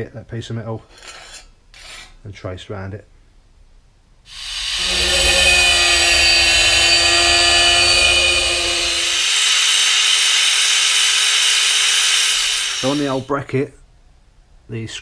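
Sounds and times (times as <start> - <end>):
angle grinder cutting steel: 4.3 - 13.2.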